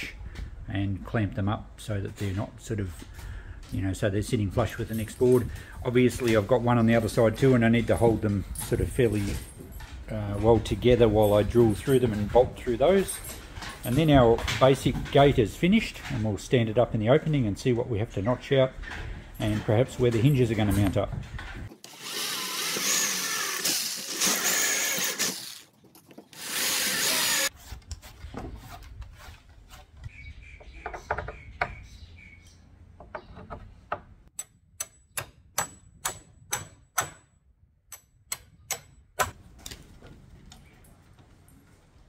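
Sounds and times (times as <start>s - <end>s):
electric drill boring through wood: 21.7s - 25.6s, 26.4s - 27.5s
hammer striking steel bolts: 34.4s - 39.4s.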